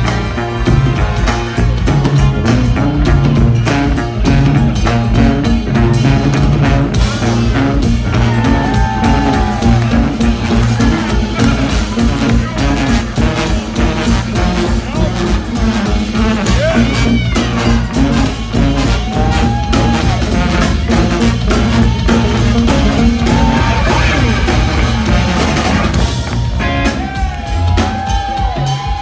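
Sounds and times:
drum kit: 0.0 - 29.0.

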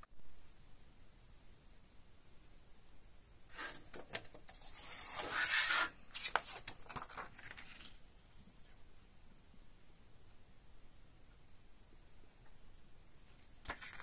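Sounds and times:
paper booklet rustling: 3.5 - 8.7, 13.3 - 14.0.

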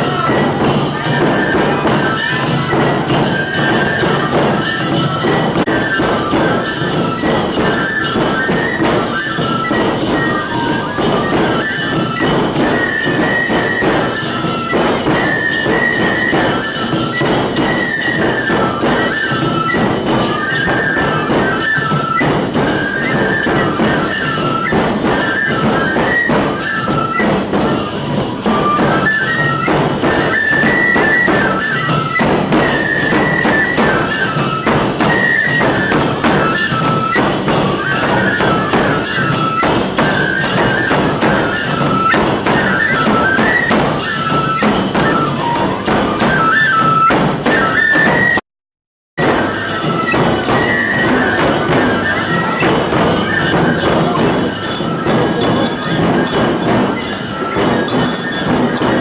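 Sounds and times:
hand cymbals clanging: 0.0 - 48.2, 49.2 - 59.0
bamboo flute melody: 0.0 - 48.4, 49.2 - 59.0
large drum beats: 0.0 - 48.4, 49.2 - 59.0.

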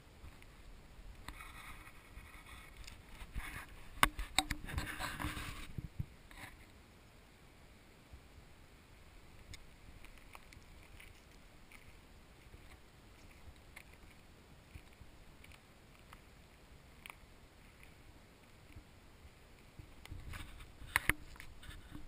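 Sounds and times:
faint background hiss: 0.0 - 22.0
faint irregular ticks: 0.1 - 6.8, 9.2 - 22.0.

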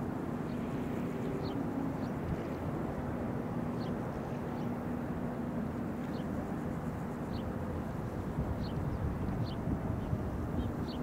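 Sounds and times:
faint constant hum: 0.0 - 11.0.

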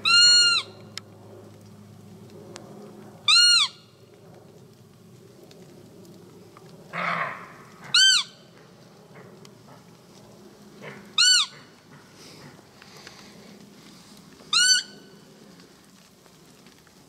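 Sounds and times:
high deer calls: 6.9 - 8.4, 10.8 - 11.8, 14.5 - 15.0.

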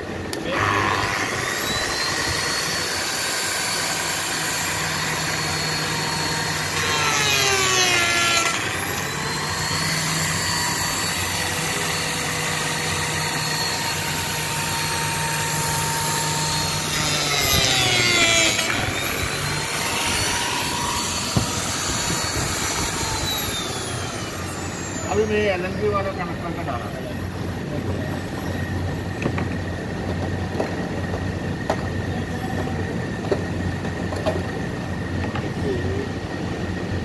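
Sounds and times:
slot cutter whining: 0.2 - 25.7.

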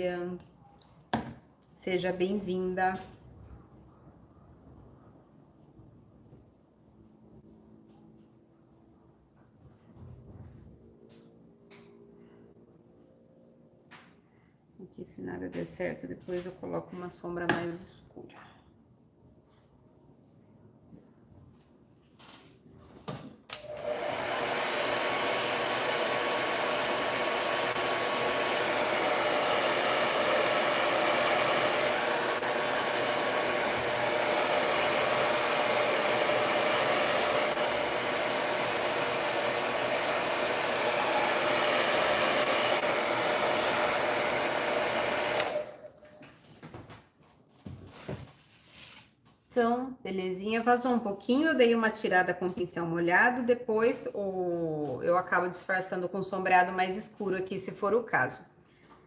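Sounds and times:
hair dryer blowing: 23.5 - 46.0.

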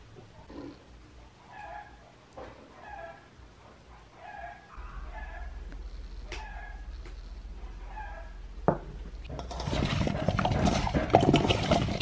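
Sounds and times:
potato slices rattling in metal bowl: 9.3 - 12.0.

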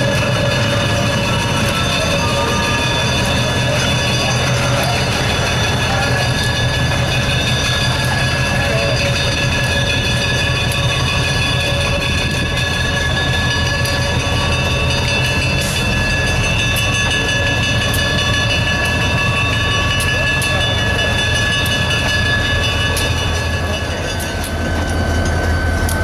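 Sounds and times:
diesel locomotive engine rumble: 0.0 - 26.0.

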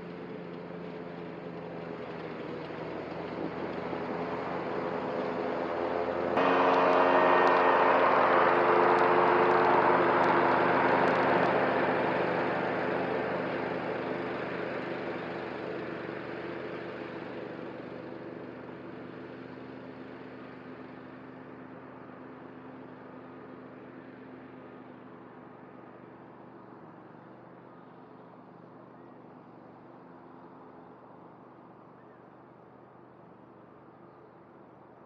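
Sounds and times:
riding mower running: 0.0 - 34.4.

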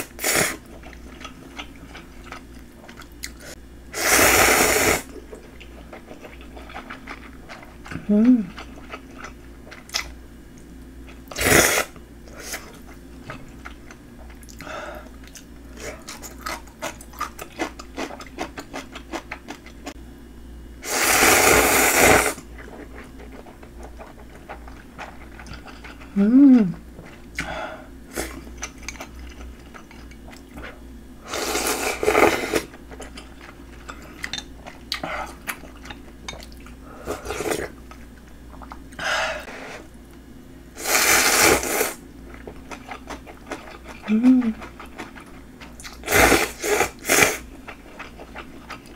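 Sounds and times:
person slurping noodles: 4.0 - 5.1, 11.4 - 12.7, 20.8 - 22.4, 31.3 - 32.7, 40.8 - 42.0, 46.0 - 47.4
wet chewing: 22.6 - 26.1, 42.3 - 46.1, 46.9 - 48.9.

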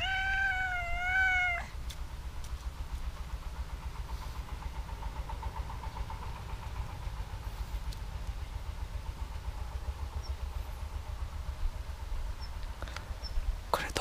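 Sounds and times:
cat meowing: 0.0 - 1.7
steady low rumble: 0.0 - 14.0.

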